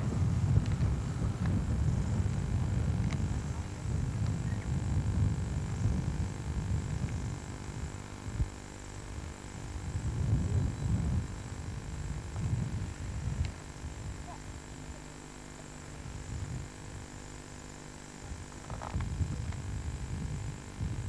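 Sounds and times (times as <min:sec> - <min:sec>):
wind buffeting microphone: 0:00.0 - 0:08.5, 0:09.2 - 0:14.3, 0:18.7 - 0:21.0
faint electrical hum: 0:00.0 - 0:21.0.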